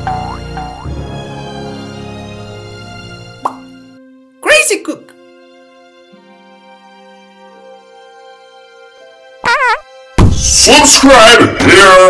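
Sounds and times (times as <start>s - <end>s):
music with held notes: 5.1s - 10.2s.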